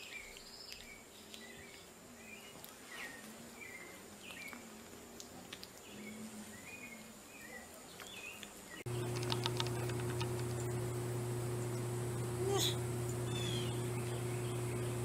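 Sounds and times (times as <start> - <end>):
fast ticking: 8.9 - 10.9
faint high whine: 8.9 - 15.0
steady hum: 8.9 - 15.0.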